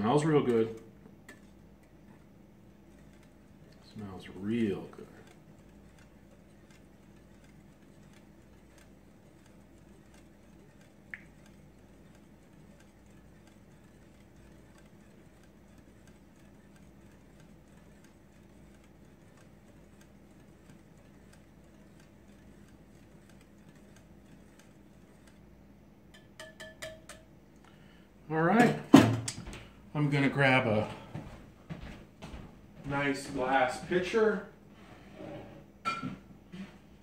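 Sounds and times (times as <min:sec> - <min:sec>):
whisk ticking against glass bowl: 0:00.0 - 0:27.4
whisk clinking on glass: 0:26.1 - 0:27.3.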